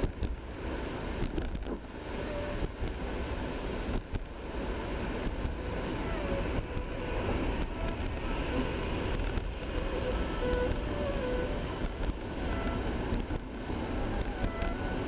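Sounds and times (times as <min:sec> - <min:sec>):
road and engine rumble: 0:00.0 - 0:15.0
faint short squeaks: 0:12.4 - 0:13.0, 0:14.1 - 0:15.0.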